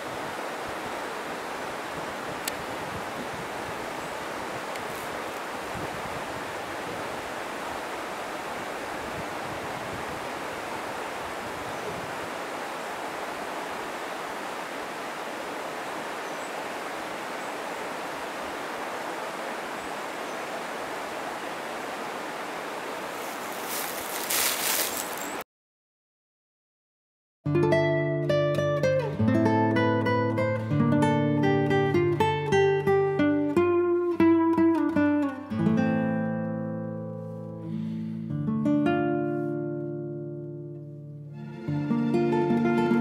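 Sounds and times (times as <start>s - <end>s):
stream water rushing over rocks: 0.0s - 23.8s.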